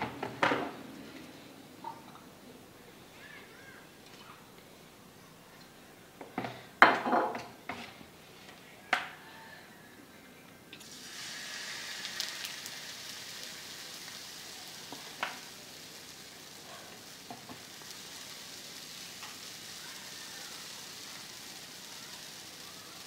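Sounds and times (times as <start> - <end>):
batter sizzling on hot pan: 10.8 - 23.0.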